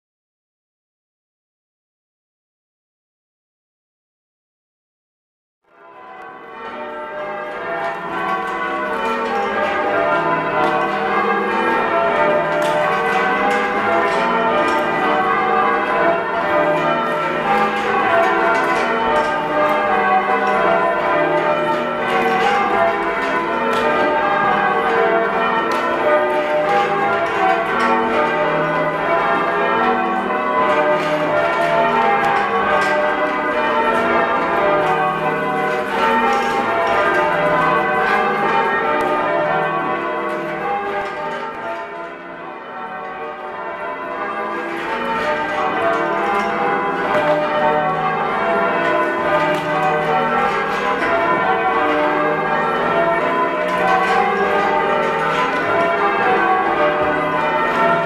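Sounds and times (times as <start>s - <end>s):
church bells change ringing: 5.7s - 58.0s.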